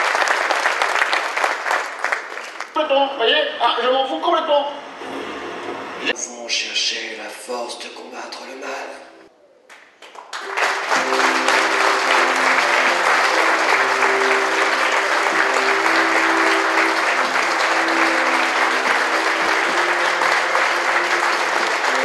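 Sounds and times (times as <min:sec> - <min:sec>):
audience applauding: 0:00.0 - 0:02.8, 0:09.7 - 0:22.0
film music with low tones: 0:10.5 - 0:22.0.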